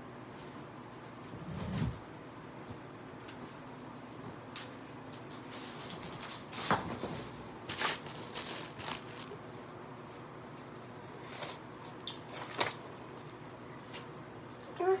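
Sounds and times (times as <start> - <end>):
rustling and crinkling handling: 5.1 - 14.1.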